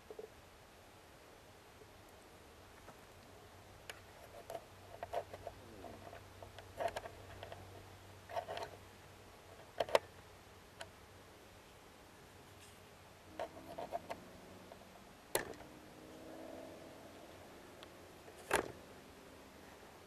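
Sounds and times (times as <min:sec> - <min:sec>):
faint low hum: 0:00.0 - 0:20.0.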